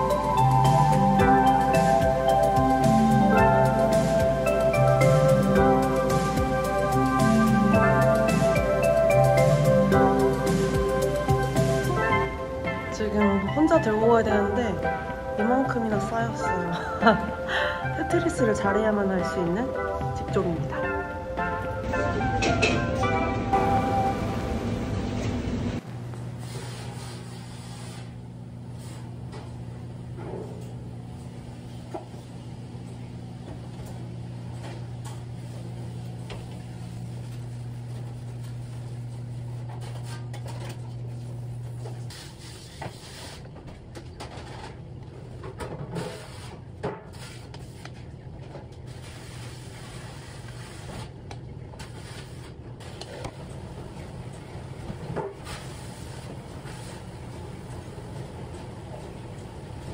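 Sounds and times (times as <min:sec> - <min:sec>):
kitchen equipment hum: 0:00.0 - 0:59.9.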